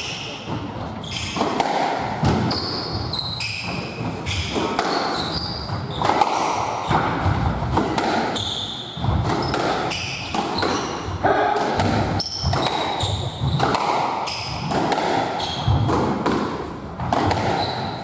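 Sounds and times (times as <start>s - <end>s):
squash ball smacking: 0.5s - 18.0s
shoes squeaking on wooden floor: 2.4s - 6.2s, 8.3s - 11.2s, 12.2s - 14.7s, 17.4s - 18.0s.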